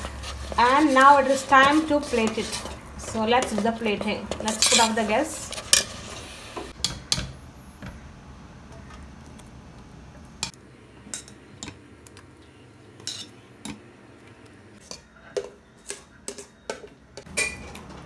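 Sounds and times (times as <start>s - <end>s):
metal spoon scraping pot: 0.0s - 6.3s, 13.0s - 13.8s.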